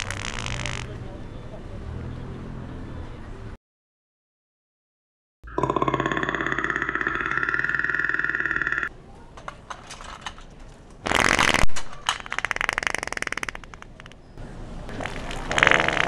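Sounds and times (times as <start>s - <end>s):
fart noise-maker toy: 0.0s - 0.9s, 5.5s - 8.9s, 11.0s - 11.7s, 12.3s - 13.9s, 15.5s - 16.0s
pulsing growl-like sound: 5.5s - 8.9s.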